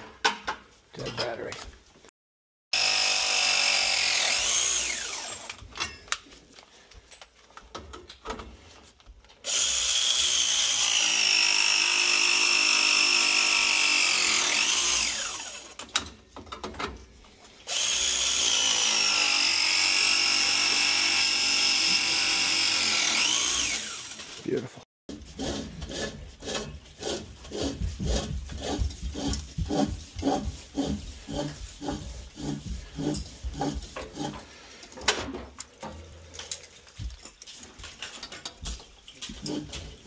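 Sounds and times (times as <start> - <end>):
press tool motor whining: 2.8 - 5.6, 17.7 - 24.4.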